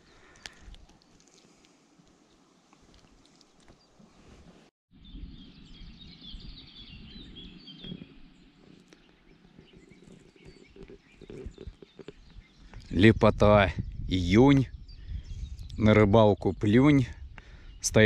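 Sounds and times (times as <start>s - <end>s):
birds chirping: 5.0s - 18.0s.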